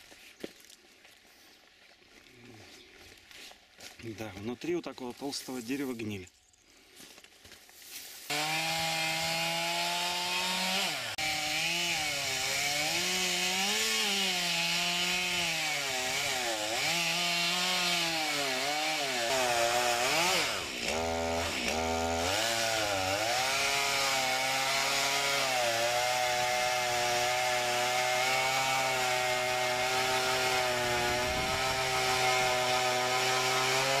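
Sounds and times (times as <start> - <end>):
chainsaw cutting wood: 8.3 - 34.0.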